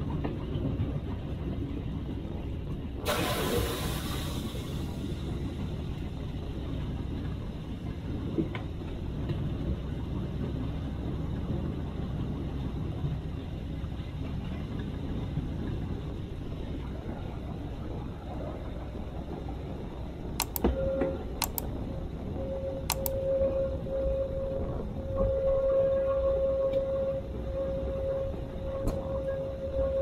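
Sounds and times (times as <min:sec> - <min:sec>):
diesel locomotive rumbling: 0:00.0 - 0:30.0
sharp click: 0:20.4 - 0:20.7, 0:21.4 - 0:21.7, 0:22.9 - 0:23.2.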